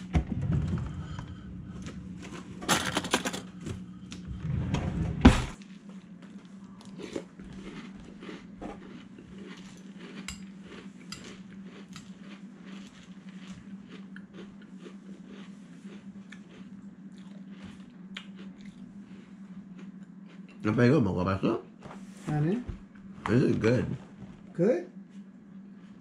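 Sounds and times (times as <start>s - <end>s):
steady low hum: 0.0s - 26.0s
cutlery rattling in drawer: 2.6s - 3.5s
cutlery clatter: 2.7s - 3.4s.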